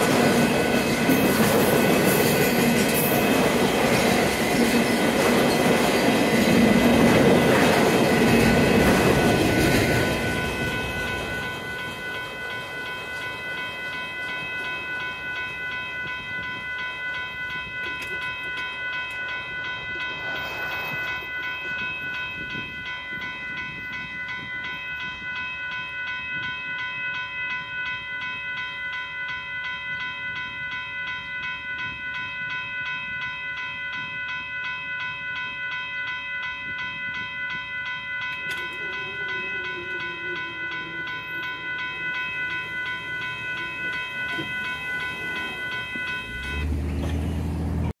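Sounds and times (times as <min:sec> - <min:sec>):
railroad crossing bell ringing: 0:00.0 - 0:47.9
traffic low rumble: 0:45.5 - 0:47.9.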